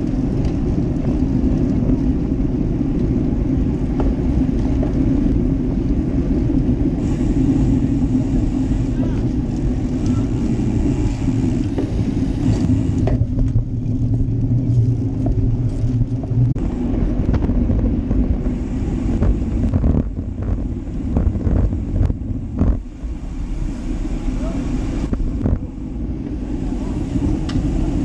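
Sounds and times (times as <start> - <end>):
road rumble: 0.0 - 28.0
wind buffeting microphone: 0.0 - 28.0.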